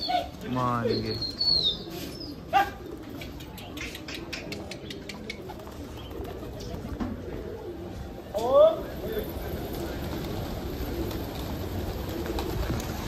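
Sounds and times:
pigeon wings flapping: 2.8 - 7.6, 9.0 - 13.0.

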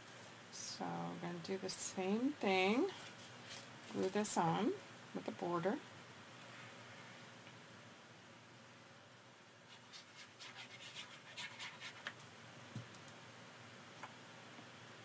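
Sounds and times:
glue applicator scratching on paper: 9.7 - 12.1.

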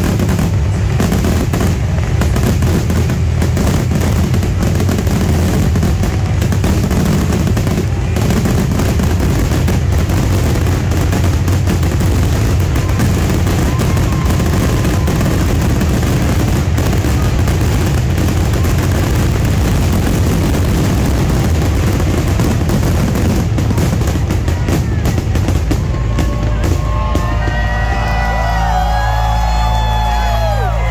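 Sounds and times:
fireworks bangs and crackling: 0.0 - 30.9
crowd whistling and whooping: 8.2 - 17.8, 24.5 - 30.9.

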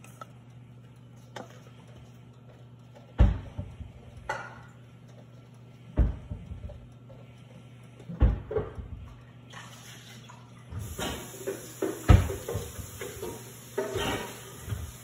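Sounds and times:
steady low hum: 0.0 - 9.6.

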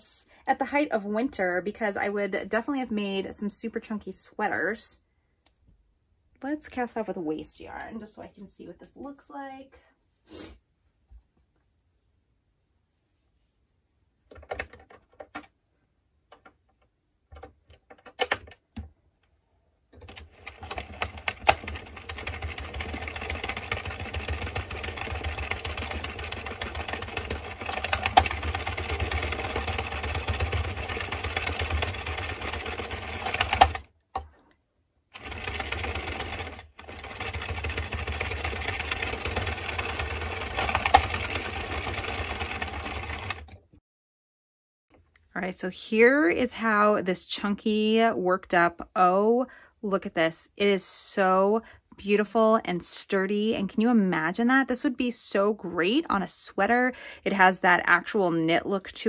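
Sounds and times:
knitting machine needles clattering: 19.9 - 33.9, 35.2 - 43.6.

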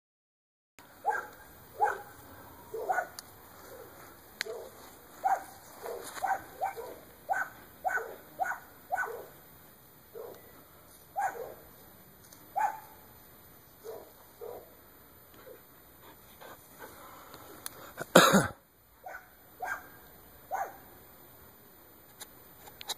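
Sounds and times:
dog barking: 1.0 - 9.4, 10.1 - 10.4, 11.2 - 11.6, 12.6 - 13.0, 13.8 - 14.8, 19.0 - 20.9.

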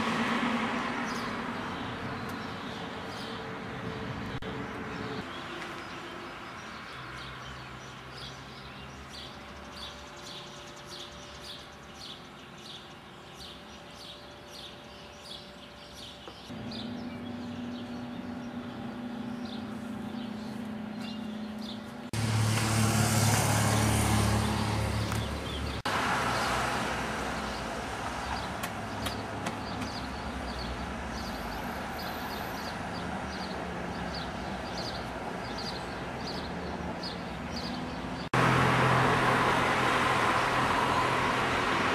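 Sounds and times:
traffic hum: 0.0 - 41.9
vehicle passing close: 16.5 - 35.5, 36.3 - 41.9
vehicle engine: 16.5 - 41.9.

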